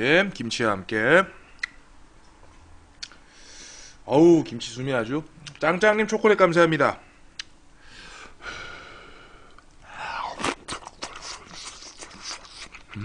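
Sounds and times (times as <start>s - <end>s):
man breathing: 3.2s - 4.0s, 7.1s - 10.4s
mouth clicks and smacks chewing: 10.4s - 13.0s.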